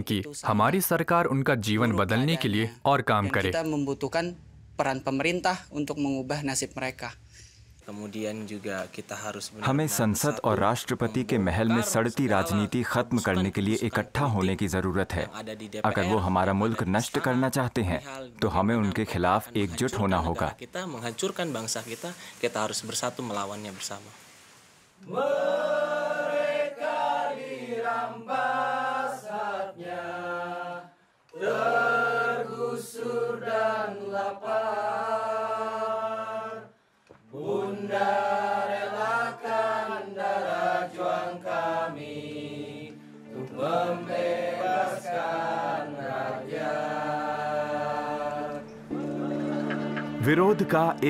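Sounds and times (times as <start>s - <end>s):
group singing in unison: 25.0s - 50.7s.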